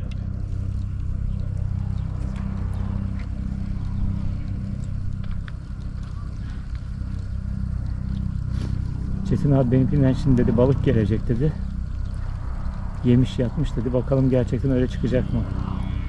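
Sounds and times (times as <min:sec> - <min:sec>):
faint clicks: 0:00.0 - 0:09.2
low engine hum: 0:00.0 - 0:16.0.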